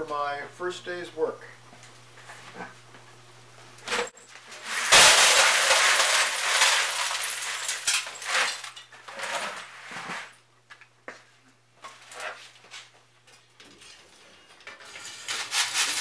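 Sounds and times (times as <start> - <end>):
glass chunks clattering onto metal: 3.9 - 9.7.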